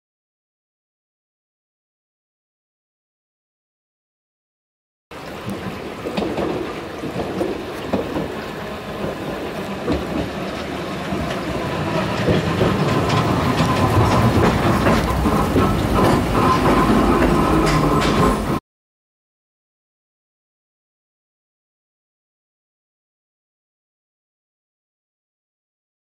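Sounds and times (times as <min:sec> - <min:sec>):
streetcar wheels clattering: 0:05.2 - 0:18.6.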